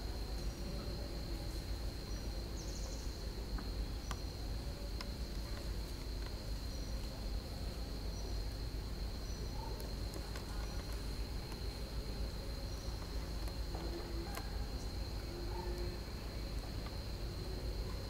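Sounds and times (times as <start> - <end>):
faint clicks: 9.7 - 12.4.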